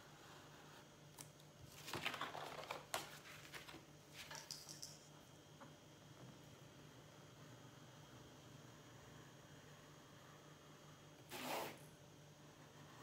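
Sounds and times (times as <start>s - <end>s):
paper rustling and sliding: 1.7s - 4.3s.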